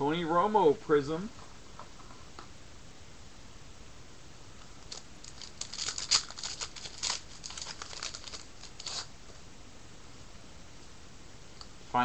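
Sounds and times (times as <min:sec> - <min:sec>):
wrapper tearing and crinkling: 0:04.8 - 0:09.1.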